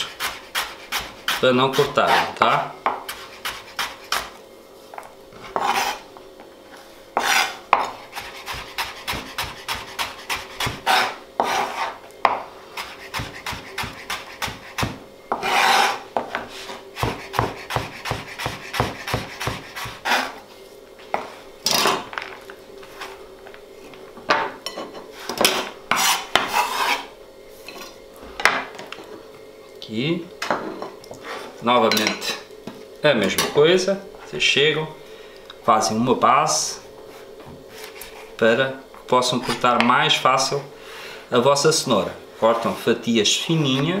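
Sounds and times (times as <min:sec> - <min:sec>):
knife scraping board: 0:00.0 - 0:04.4, 0:05.4 - 0:06.1, 0:07.2 - 0:12.0, 0:12.8 - 0:20.4, 0:25.2 - 0:27.1, 0:37.7 - 0:38.3
knife chopping on plastic board: 0:17.0 - 0:20.2.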